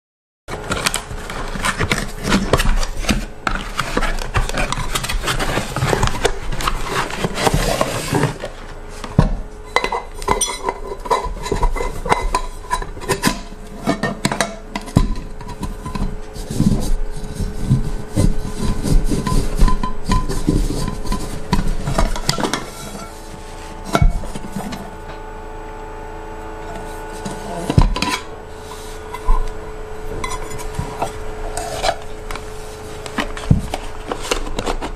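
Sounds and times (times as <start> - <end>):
cardboard box rustling and scraping: 0.5 - 25.0, 26.7 - 34.9
metal pots clinking: 9.7 - 16.1, 30.2 - 32.4.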